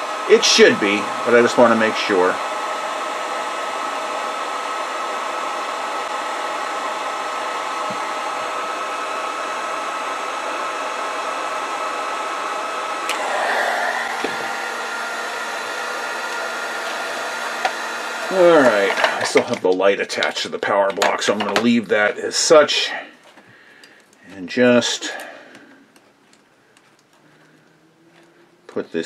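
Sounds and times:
heat gun blowing and whining: 0.0 - 20.3.

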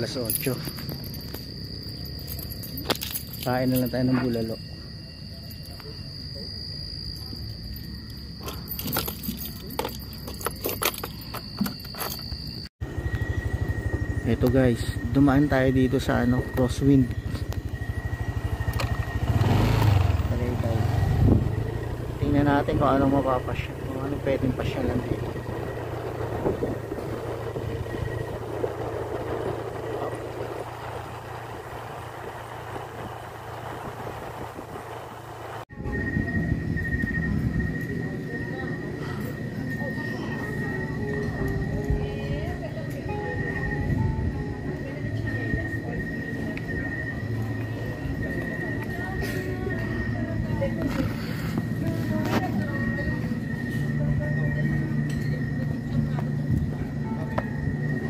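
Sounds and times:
high-pitched whine: 0.0 - 58.0
road noise: 0.0 - 58.0
wind: 0.0 - 58.0
motorcycle engine running: 12.8 - 58.0.

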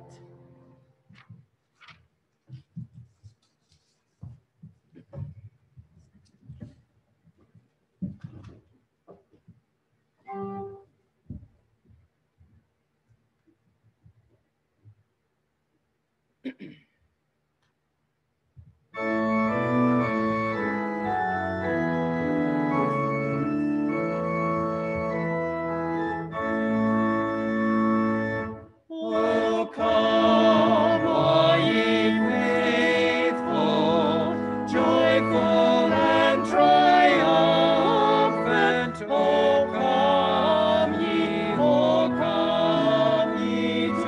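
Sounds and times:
organ playing chords: 19.0 - 44.0
voices singing a hymn: 28.9 - 44.0.

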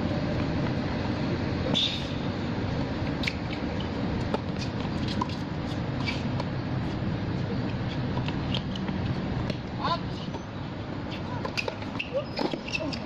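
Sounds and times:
steady low rumble: 0.0 - 11.5
shoes squeaking: 2.8 - 13.0
ball bouncing: 7.9 - 10.4.

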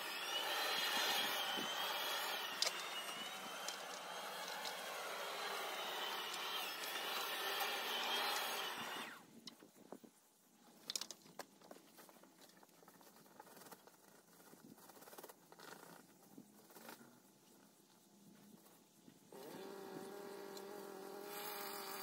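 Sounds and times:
electric lawn mower running: 0.0 - 9.2.

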